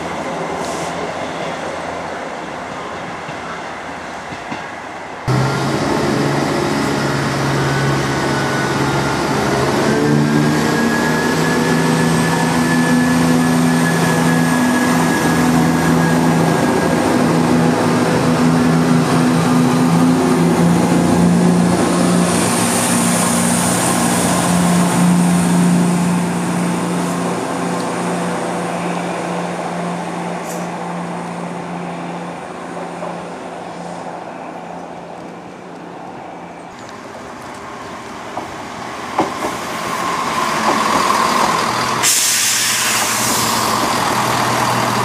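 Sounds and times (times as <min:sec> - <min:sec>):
diesel train engine humming: 0:04.8 - 0:45.0.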